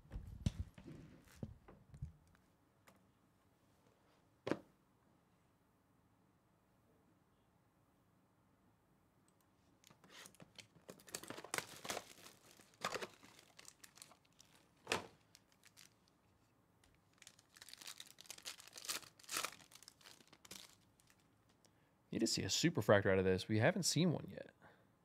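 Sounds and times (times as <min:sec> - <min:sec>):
plastic wrapping tearing and crackling: 0:09.8 - 0:16.1, 0:16.9 - 0:21.3.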